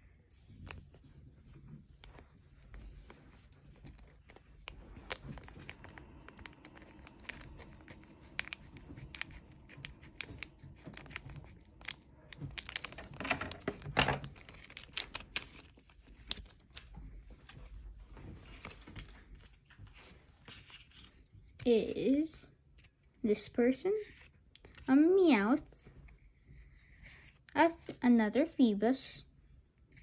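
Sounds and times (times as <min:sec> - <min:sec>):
foil wrapper crackling: 0:04.6 - 0:17.0.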